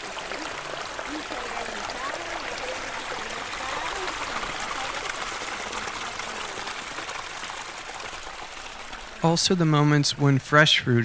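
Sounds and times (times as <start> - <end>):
faint voices: 0.0 - 7.8.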